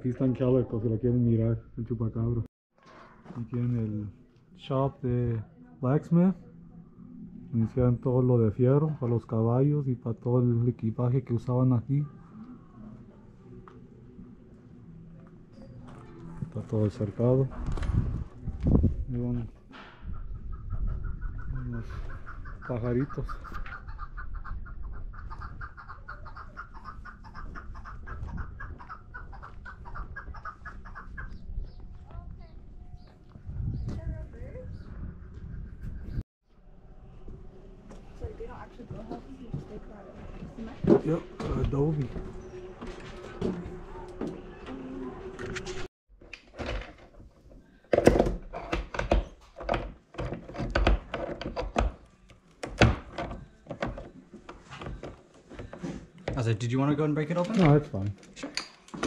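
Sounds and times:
small birds chirping: 20.0s - 36.2s.

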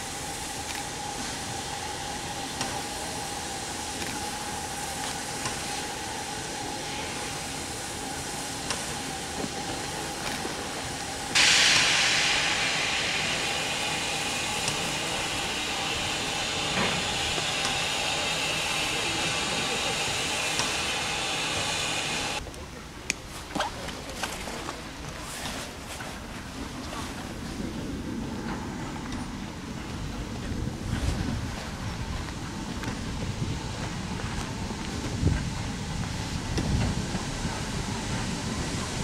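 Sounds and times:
loud rush of escaping steam: 0.0s - 22.4s, 25.2s - 39.0s
steam locomotive hissing: 0.0s - 22.4s, 24.8s - 39.0s.

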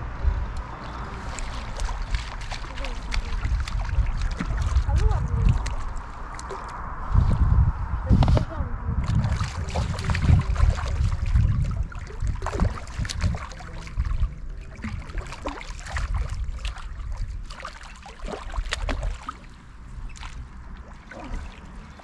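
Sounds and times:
low rumble: 0.0s - 17.6s
water splashing and sloshing: 0.0s - 22.0s.

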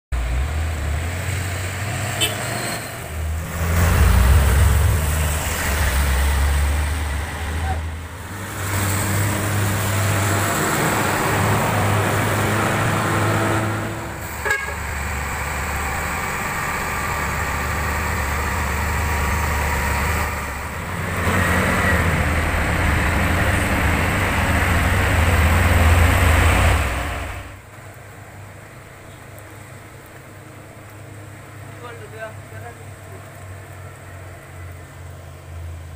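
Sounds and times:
truck diesel engines labouring: 0.2s - 27.6s
heavy rain: 0.2s - 35.9s
wet tyres: 0.2s - 35.9s.

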